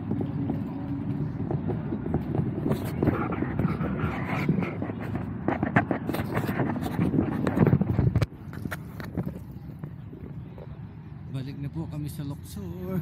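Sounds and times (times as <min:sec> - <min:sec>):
footsteps on pavement: 0:00.0 - 0:10.9
camera handling rumble: 0:02.2 - 0:10.7.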